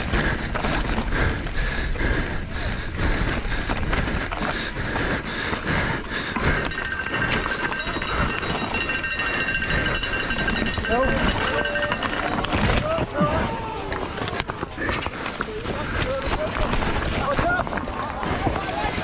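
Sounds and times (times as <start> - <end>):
bike rattling and knocking: 0.0 - 19.0
tyres crunching over stones: 10.6 - 19.0.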